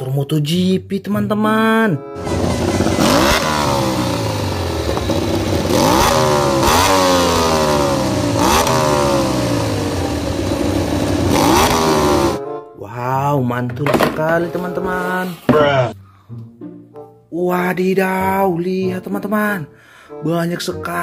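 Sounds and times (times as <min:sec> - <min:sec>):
motorcycle engines revving: 0:02.2 - 0:12.4.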